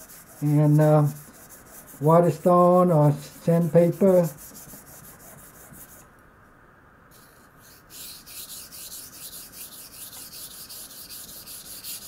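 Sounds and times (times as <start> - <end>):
knife scraping on whetstone: 7.2 - 12.0.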